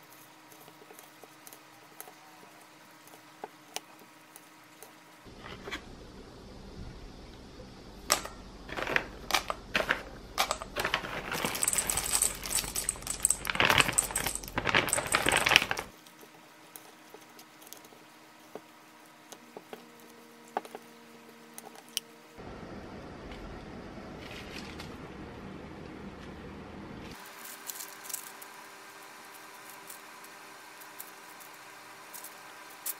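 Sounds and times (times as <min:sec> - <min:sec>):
nuts rattling into metal bowl: 0:08.1 - 0:15.9, 0:27.3 - 0:28.6
pouch crinkling: 0:10.7 - 0:16.0.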